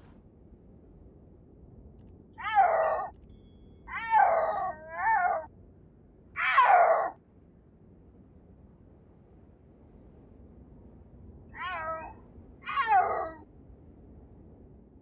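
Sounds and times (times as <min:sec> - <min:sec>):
cat meowing: 0:02.4 - 0:03.1, 0:06.4 - 0:07.1, 0:11.6 - 0:13.4.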